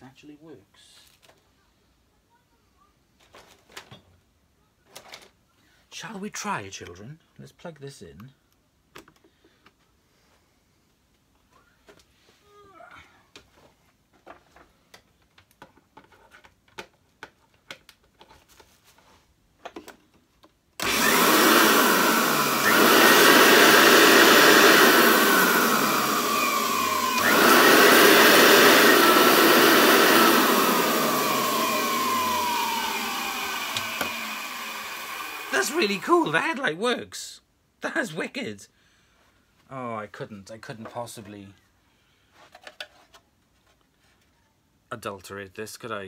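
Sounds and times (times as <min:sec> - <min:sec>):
vacuum cleaner motor whining: 0:20.8 - 0:36.1.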